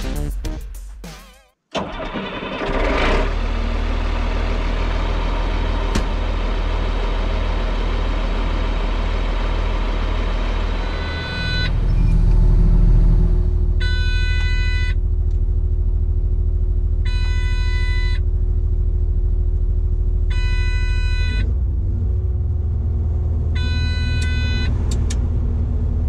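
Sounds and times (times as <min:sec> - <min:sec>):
diesel engine running: 0:01.8 - 0:26.0
reversing alarm beep: 0:10.8 - 0:12.3, 0:13.8 - 0:15.0, 0:17.1 - 0:18.2, 0:20.3 - 0:21.5, 0:23.6 - 0:24.7.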